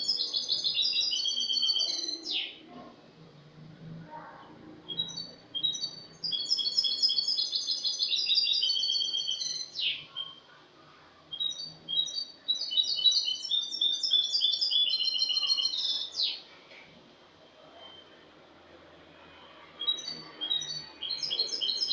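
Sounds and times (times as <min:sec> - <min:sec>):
goldfinch singing twittering song: 0:00.0 - 0:02.6, 0:04.9 - 0:10.4, 0:11.3 - 0:16.4, 0:19.8 - 0:21.9.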